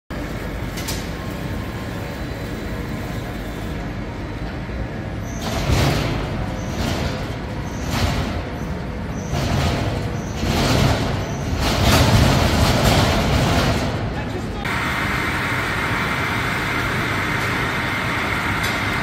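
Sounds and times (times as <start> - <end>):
sawmill machinery humming: 14.6 - 19.0.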